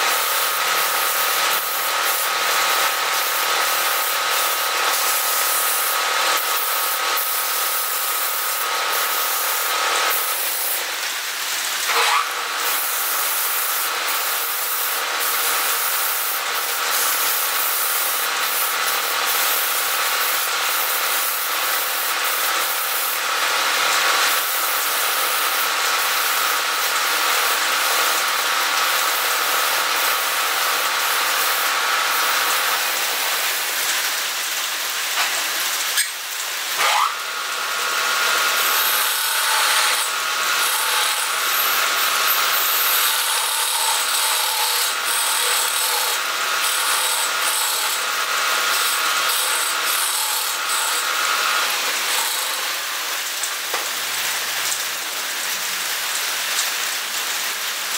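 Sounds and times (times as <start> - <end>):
sandpaper hissing on spinning wood: 0.0 - 10.9, 11.8 - 28.2, 36.8 - 53.4
lathe whine: 36.8 - 53.2
turning tool scraping wood: 38.7 - 41.7, 42.5 - 48.0, 48.7 - 52.8.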